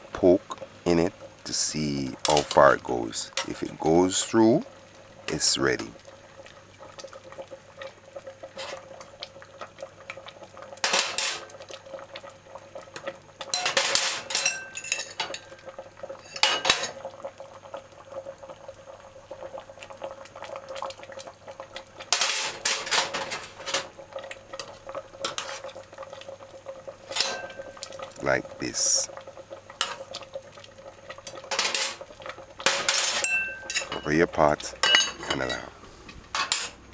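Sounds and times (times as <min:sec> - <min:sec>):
metal utensils clinking on a pot: 0:10.8 - 0:11.5, 0:13.5 - 0:15.6, 0:16.2 - 0:17.0, 0:22.1 - 0:23.9, 0:27.1 - 0:27.8, 0:31.2 - 0:32.0, 0:32.6 - 0:35.7, 0:36.3 - 0:36.8.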